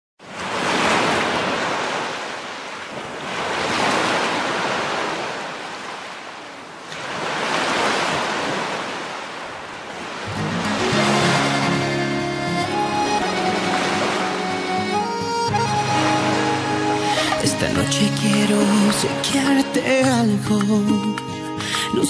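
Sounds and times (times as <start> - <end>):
ocean surf washing up beach: 0.2 - 22.0
music: 10.3 - 22.0.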